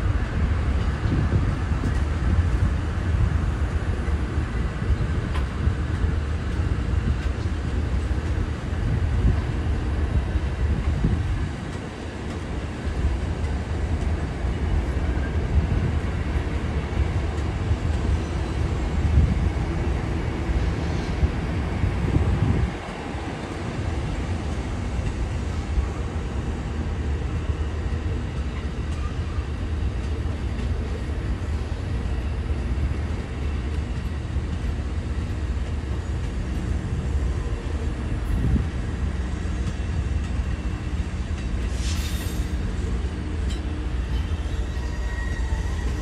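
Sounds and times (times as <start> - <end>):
train wheels rumbling on rails: 0.0 - 46.0
short hiss: 41.6 - 42.6.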